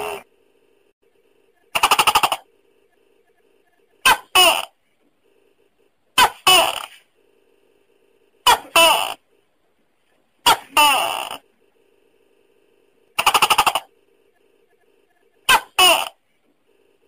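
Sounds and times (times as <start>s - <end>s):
gecko two-part calls: 13.2s - 13.9s.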